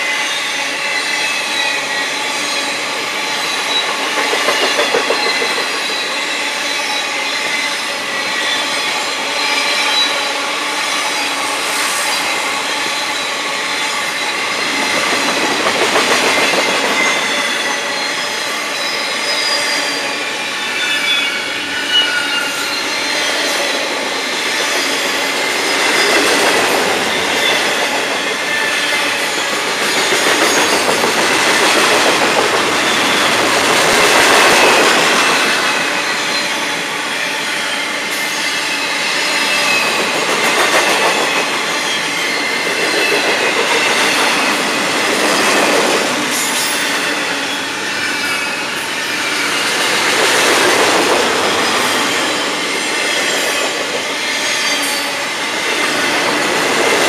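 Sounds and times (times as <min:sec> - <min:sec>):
train wheels rolling on rails: 0:00.0 - 0:57.0
high-pitched wheel squeals: 0:16.3 - 0:31.1.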